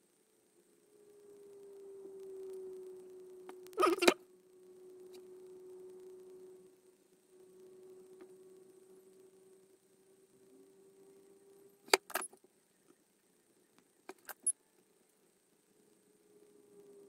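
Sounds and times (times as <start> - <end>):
faint steady hum: 0.0 - 17.0
metallic clicks and clinks: 11.9 - 12.4, 14.1 - 14.6.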